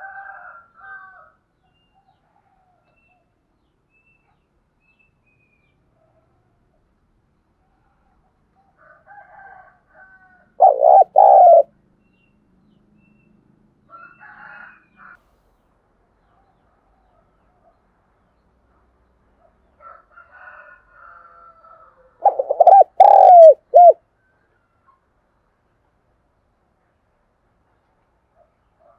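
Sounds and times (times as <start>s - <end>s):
dove cooing: 10.6s - 11.7s, 22.2s - 24.0s
faint bird calls: 10.6s - 11.7s, 22.2s - 24.0s.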